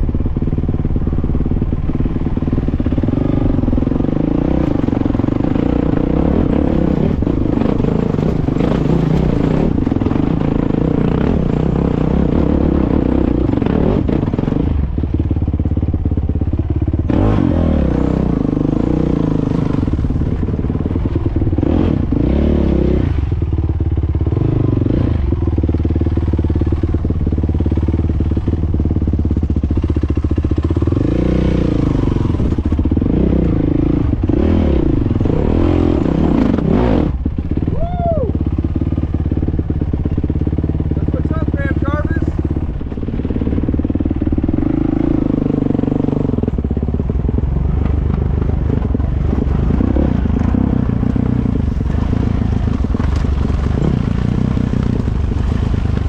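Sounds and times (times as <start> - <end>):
rocks clattering under tyres: 51.6 - 56.0.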